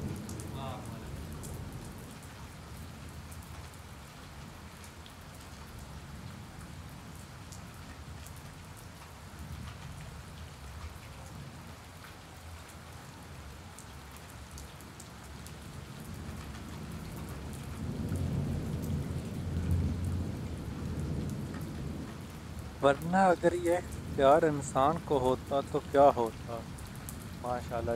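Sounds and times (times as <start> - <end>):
rain on concrete roof: 0.0 - 27.9.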